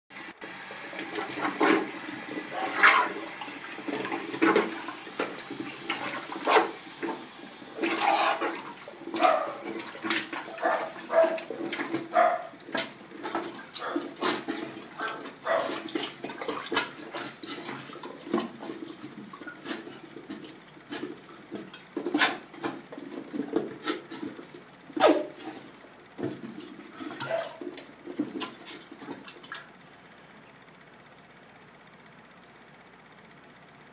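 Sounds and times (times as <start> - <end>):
plunger splashing in water: 0.9 - 7.2, 7.8 - 22.8.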